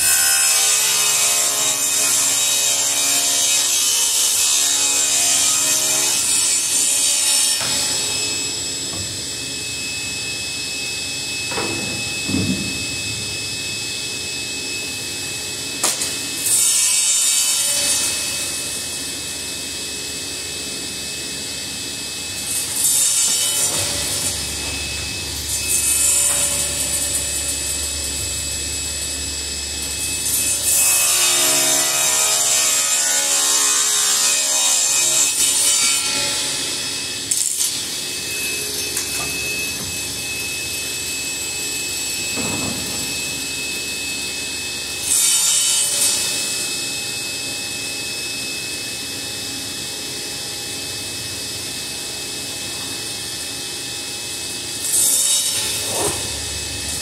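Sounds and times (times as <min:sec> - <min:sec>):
table saw ripping wood: 0:22.4 - 0:28.0, 0:54.8 - 0:57.0.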